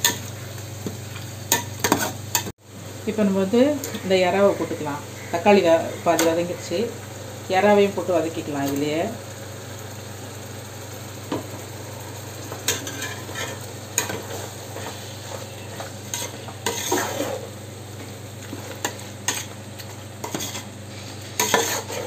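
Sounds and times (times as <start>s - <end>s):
prawns sizzling in a pot: 0.0s - 22.0s
metal ladle scraping a pot: 12.7s - 17.5s, 20.2s - 22.0s.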